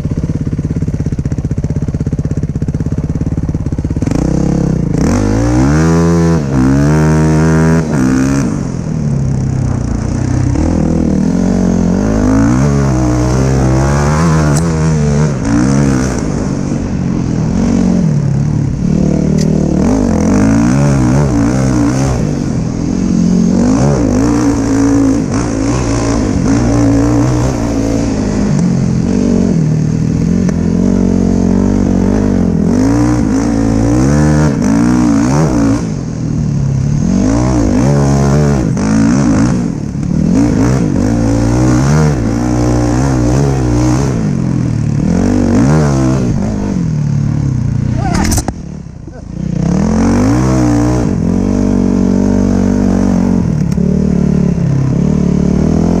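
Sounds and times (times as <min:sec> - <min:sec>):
dirt bike engine revving: 0:02.6 - 0:56.0.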